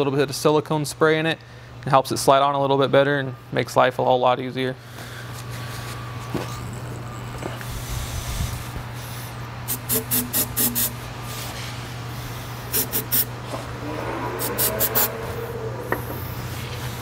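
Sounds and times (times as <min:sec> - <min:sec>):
aerosol spray hissing: 0:09.7 - 0:11.0, 0:12.7 - 0:13.3.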